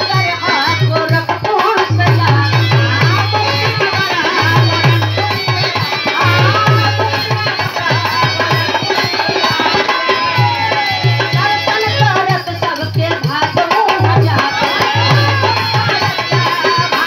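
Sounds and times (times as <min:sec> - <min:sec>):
harmonium held notes: 0:00.0 - 0:13.2
dholak drum strokes: 0:00.0 - 0:17.0
woman singing: 0:00.0 - 0:17.0.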